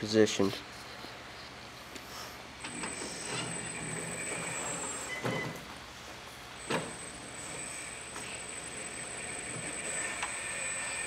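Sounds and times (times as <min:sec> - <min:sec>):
electric motor whine: 0:02.6 - 0:05.3, 0:06.6 - 0:11.0.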